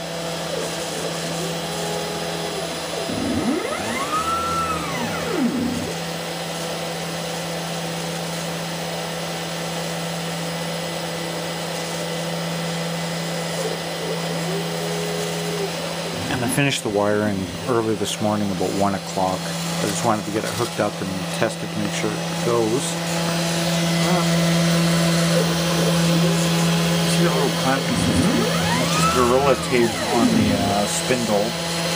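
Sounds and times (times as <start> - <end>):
stepper motors whining: 0.0 - 6.6, 21.9 - 31.9
machine hum: 0.0 - 7.1, 13.4 - 20.4, 21.6 - 31.9.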